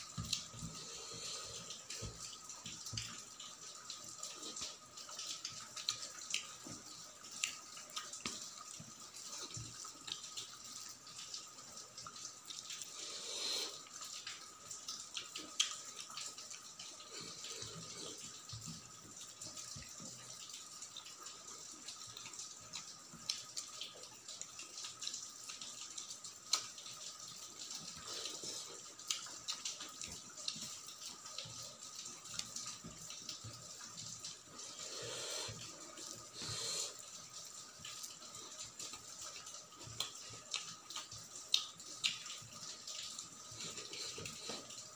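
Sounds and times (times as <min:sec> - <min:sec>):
chewing and lip smacks: 0:15.2 - 0:15.9, 0:26.5 - 0:26.8, 0:39.8 - 0:42.4.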